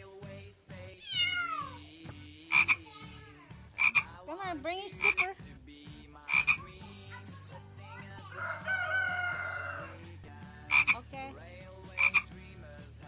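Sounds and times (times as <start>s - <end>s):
frogs croaking: 2.5s - 2.8s, 3.8s - 4.2s, 5.0s - 5.3s, 6.2s - 6.7s, 10.6s - 11.0s, 11.9s - 12.3s
rooster crowing: 8.3s - 10.1s.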